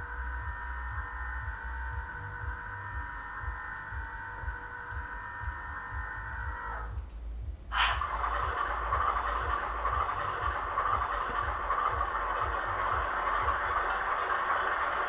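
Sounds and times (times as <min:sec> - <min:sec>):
model diesel engine sound: 0:00.0 - 0:15.0
steady electronic whine: 0:00.0 - 0:15.0.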